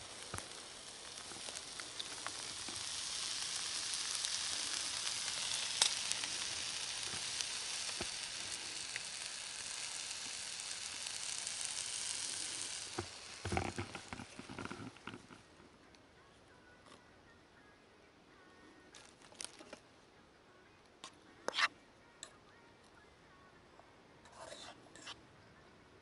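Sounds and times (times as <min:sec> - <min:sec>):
steak sizzling in a pan: 0:00.0 - 0:15.4.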